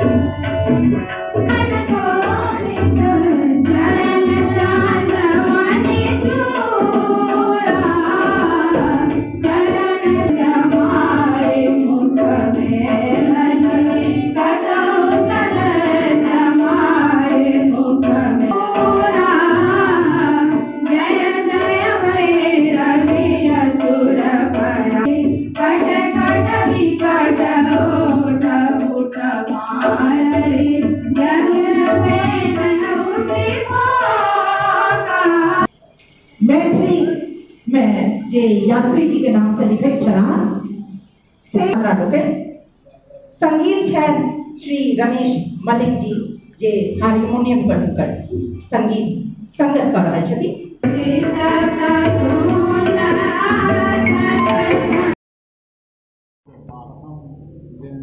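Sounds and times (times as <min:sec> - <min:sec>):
tabla: 0:00.0 - 0:49.0, 0:49.6 - 0:55.2
voices singing: 0:01.4 - 0:37.2, 0:50.8 - 0:55.2.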